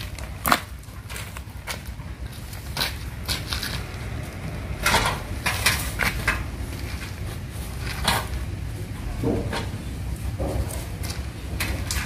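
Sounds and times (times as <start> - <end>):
steel cart knocking and clanking: 4.6 - 7.2, 7.8 - 12.0.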